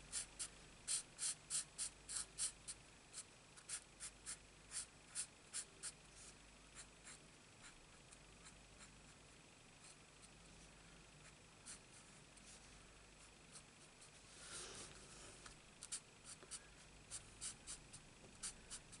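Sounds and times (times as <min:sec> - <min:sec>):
marker scratching on cardstock: 0:00.1 - 0:02.6, 0:03.2 - 0:06.0, 0:17.1 - 0:19.0.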